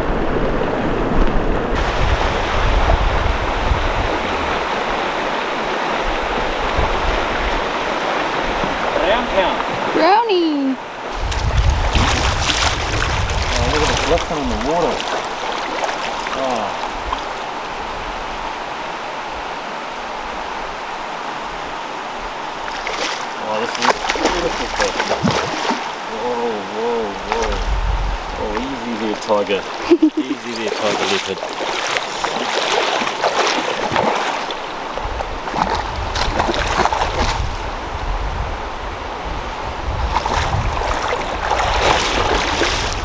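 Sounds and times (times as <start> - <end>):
wind buffeting microphone: 0.0 - 10.0, 11.0 - 15.9, 23.8 - 29.9, 32.1 - 43.0
stream water over rocks: 0.0 - 43.0.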